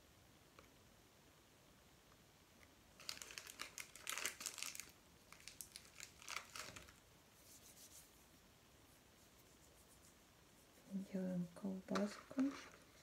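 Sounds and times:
plastic wrapping crinkling: 3.0s - 7.0s, 11.9s - 13.0s.

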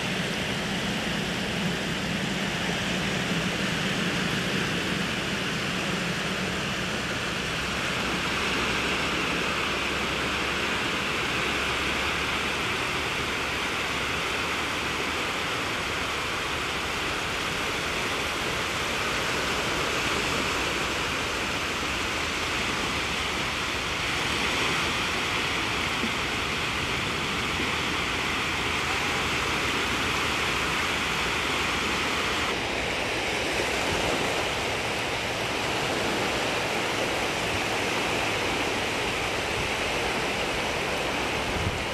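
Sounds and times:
sea water washing over sand: 0.0s - 41.9s.

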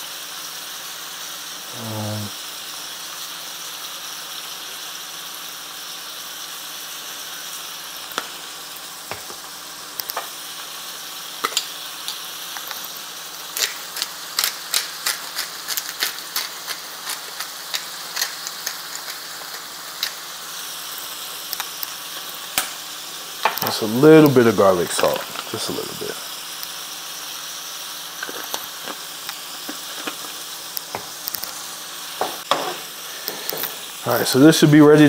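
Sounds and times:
meat sizzling in a frying pan: 0.0s - 35.0s.

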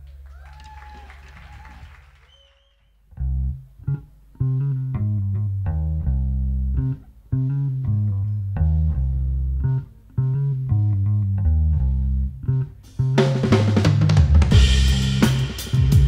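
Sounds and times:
bass guitar riff: 3.1s - 16.0s
drums and cymbals crashing: 12.9s - 16.0s.

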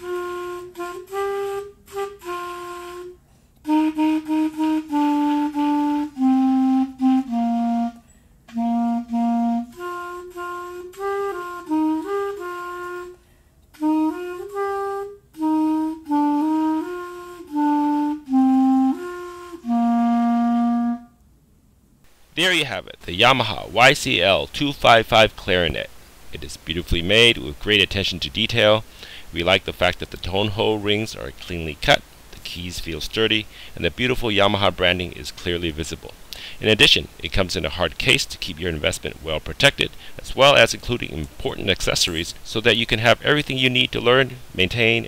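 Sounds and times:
clarinet playing a tune: 0.0s - 21.2s.

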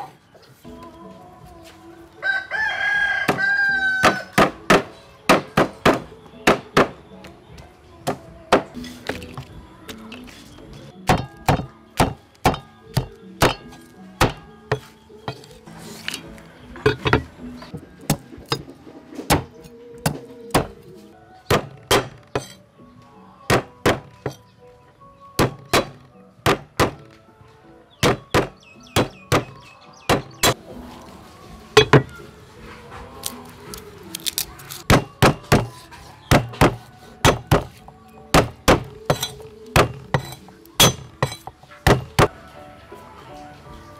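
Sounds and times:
soft background music: 0.0s - 43.9s
cleaver chopping on wooden board: 4.0s - 7.0s, 11.0s - 15.5s, 19.3s - 20.8s, 21.5s - 22.6s, 23.5s - 24.4s, 25.4s - 27.1s, 28.0s - 30.6s, 34.8s - 42.3s.

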